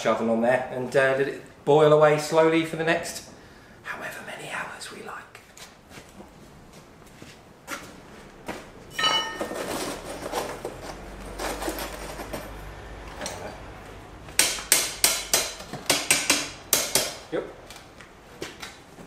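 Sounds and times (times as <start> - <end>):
ringing metal clang: 8.9 - 9.7
sharp metal knocks: 8.9 - 9.8, 14.4 - 17.2
metal scraping and rattling: 8.9 - 13.5.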